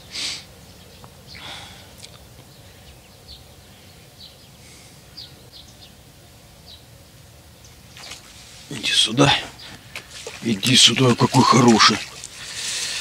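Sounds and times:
soft rustle: 0:07.9 - 0:10.9.

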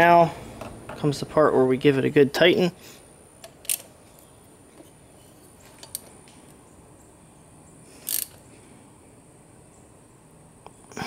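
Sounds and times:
socket ratchet rasps: 0:08.0 - 0:08.4.

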